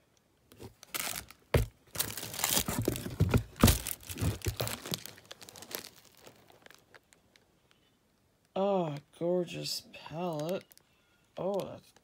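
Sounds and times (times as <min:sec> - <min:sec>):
paper and cardboard crinkling: 0:00.5 - 0:07.2.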